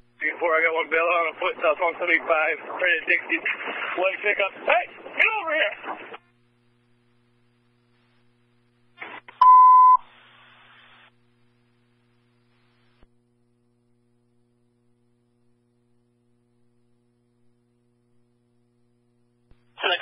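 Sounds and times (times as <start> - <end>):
open channel hiss: 0.0 - 9.4, 10.0 - 13.1, 19.5 - 20.0
radio static crackle: 0.0 - 13.1, 19.5 - 20.0
single loud beep: 9.4 - 10.0.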